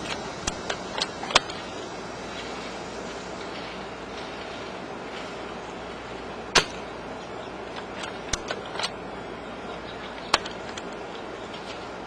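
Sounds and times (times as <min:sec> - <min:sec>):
airsoft rifle shots: 0:06.6 - 0:06.9.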